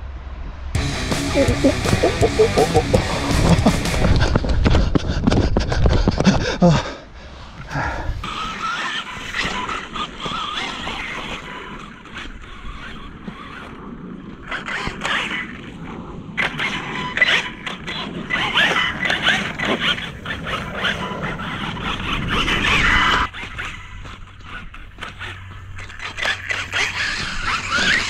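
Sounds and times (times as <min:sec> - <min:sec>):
electric motor whining: 0:00.8 - 0:04.2, 0:16.4 - 0:28.0
tires spraying sand: 0:16.4 - 0:28.0.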